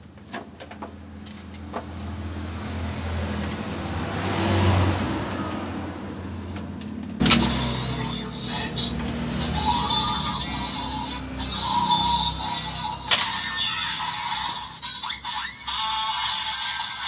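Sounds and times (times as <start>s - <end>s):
electronic toy sound effect: 9.5s - 17.0s
plastic toy clicks: 13.1s - 13.4s.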